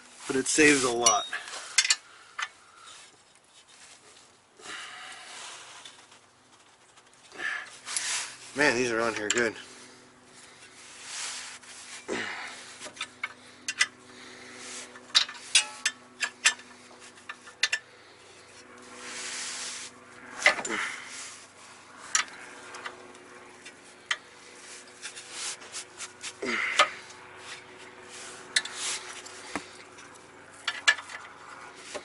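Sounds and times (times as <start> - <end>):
heavy breathing: 4.6 - 5.8, 7.3 - 8.4, 9.6 - 15.0, 20.5 - 21.6, 26.2 - 28.1
person grunting: 26.4 - 27.0.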